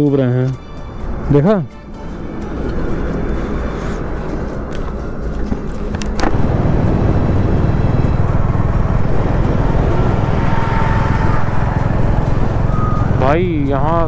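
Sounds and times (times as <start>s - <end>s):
wind and road noise: 0.0s - 14.0s
motorcycle engine running: 4.0s - 14.0s.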